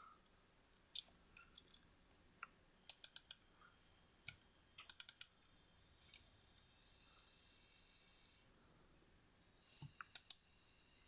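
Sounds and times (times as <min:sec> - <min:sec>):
computer mouse and keyboard clicking: 0:02.9 - 0:03.4, 0:04.3 - 0:05.3, 0:09.8 - 0:10.4.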